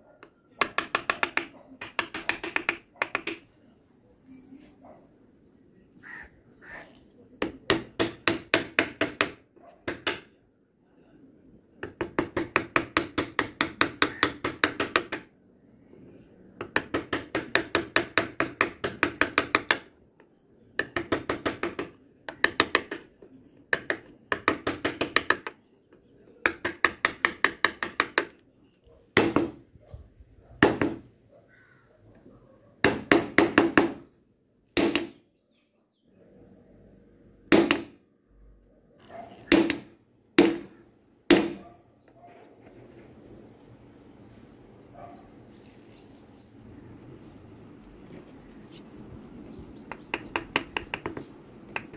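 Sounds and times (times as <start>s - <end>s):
gouge tapped into wood: 49.9s - 51.9s.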